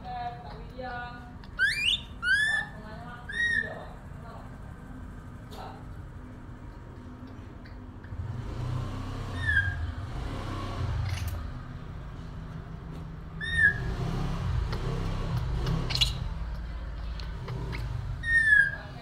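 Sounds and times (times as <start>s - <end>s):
baby monkey squeaky calls: 1.6s - 3.9s, 9.3s - 10.0s, 13.4s - 13.9s, 15.7s - 16.4s, 17.5s - 19.0s.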